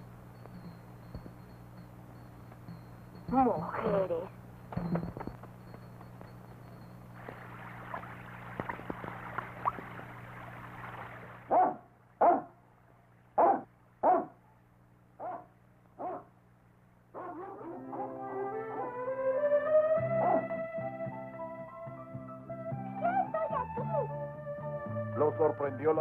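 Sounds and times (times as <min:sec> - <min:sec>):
cartoon dog barking: 0:11.5 - 0:12.6, 0:13.4 - 0:14.4, 0:15.2 - 0:16.3, 0:17.2 - 0:19.0, 0:20.2 - 0:20.5.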